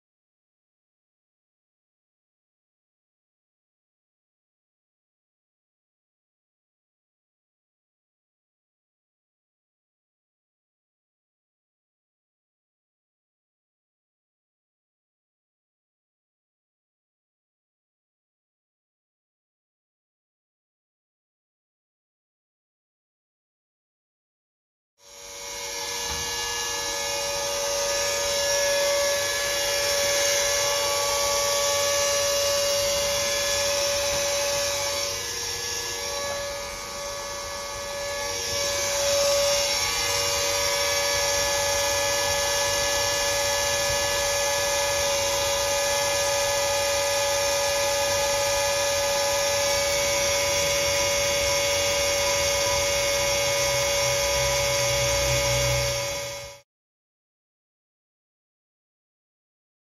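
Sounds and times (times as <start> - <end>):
electric pump humming: 25.0 - 56.6.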